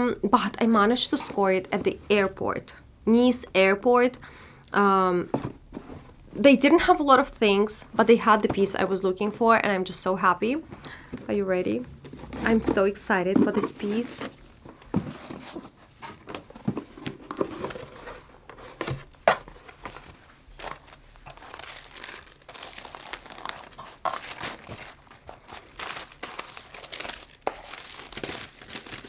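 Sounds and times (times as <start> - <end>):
tissue paper rustling: 19.6 - 29.0
sharp paper crackle: 20.6 - 29.0.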